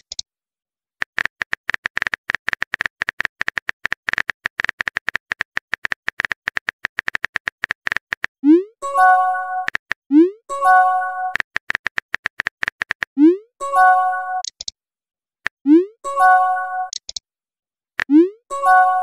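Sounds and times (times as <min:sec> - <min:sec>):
message sent chime: 0:08.8 - 0:09.7, 0:10.5 - 0:11.4, 0:13.6 - 0:14.4, 0:15.8 - 0:16.9, 0:18.5 - 0:19.0
keyboard typing clicks: 0:10.9 - 0:13.2, 0:14.2 - 0:14.7, 0:16.8 - 0:17.2.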